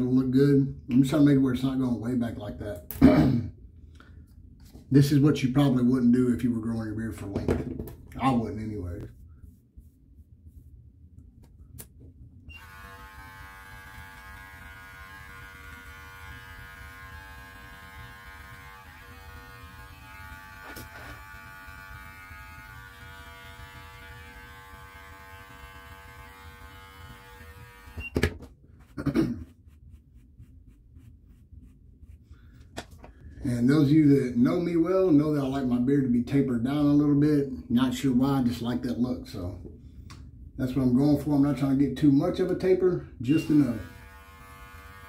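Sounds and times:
electric clippers buzzing: 12.5s - 28.2s, 43.4s - 45.0s.

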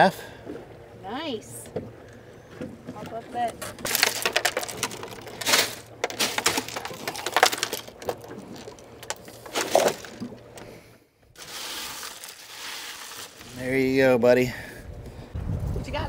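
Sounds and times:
ice crunching and rattling: 3.1s - 10.7s, 11.4s - 14.2s
fish flopping on ice: 3.8s - 10.6s, 11.4s - 13.7s.

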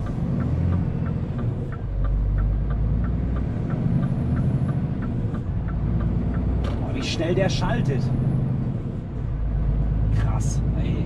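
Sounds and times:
light ticking: 0.0s - 7.3s
truck diesel engine pulling: 0.0s - 11.0s.

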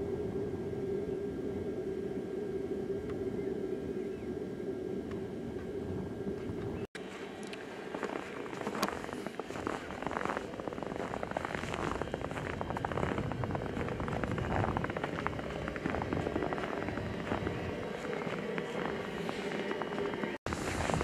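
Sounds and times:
vehicle engine running: 5.1s - 21.0s
footsteps crunching in snow: 6.4s - 21.0s.

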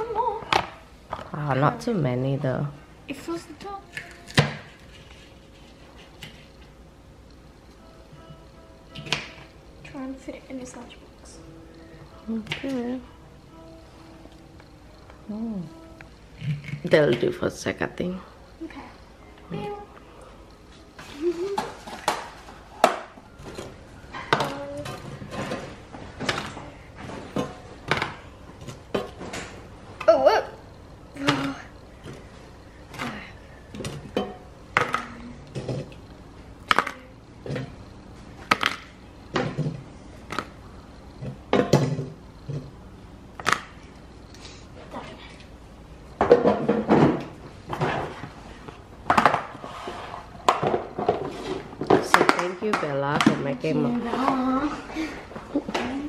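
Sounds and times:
plastic containers clattering on countertop: 21.5s - 29.5s, 41.2s - 42.7s, 46.2s - 48.3s, 49.1s - 49.6s, 50.4s - 54.4s
utensils and plastic containers knocking: 50.4s - 54.4s.

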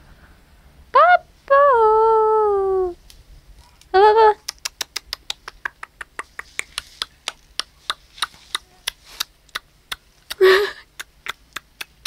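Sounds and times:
sharp tongue clicks: 4.4s - 12.0s.

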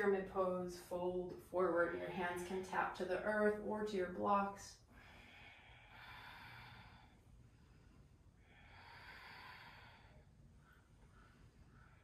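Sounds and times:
person breathing slowly: 4.9s - 12.0s.

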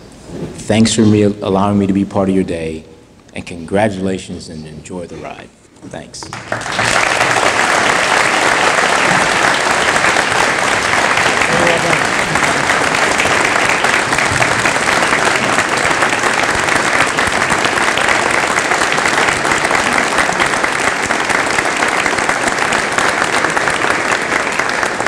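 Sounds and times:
audience applauding: 6.2s - 25.0s.

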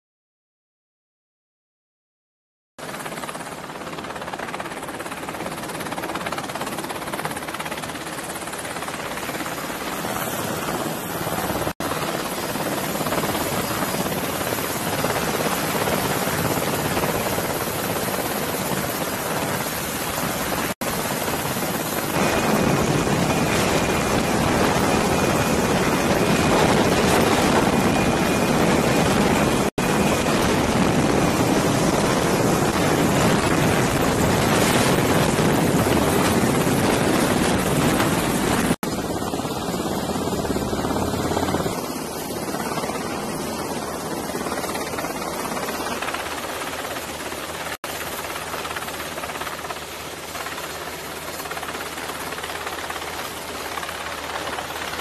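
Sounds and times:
helicopter rotor and turbine noise: 2.8s - 55.0s
wind on microphone: 13.0s - 43.0s.

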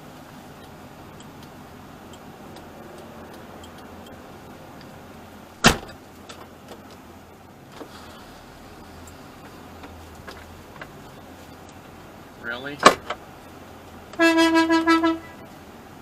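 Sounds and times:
sharp thump: 5.6s - 6.0s.

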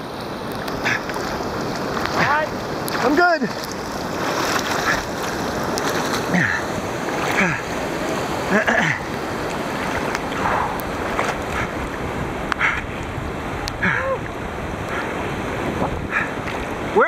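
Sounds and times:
whitewater rushing: 0.0s - 17.0s
gurgling sounds: 0.8s - 12.9s.

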